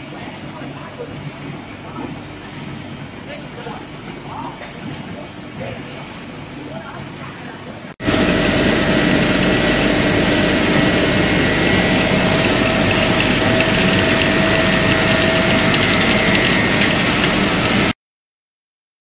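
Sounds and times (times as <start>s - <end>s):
machinery hums: 0.0s - 18.0s
machinery rattling: 8.0s - 18.0s.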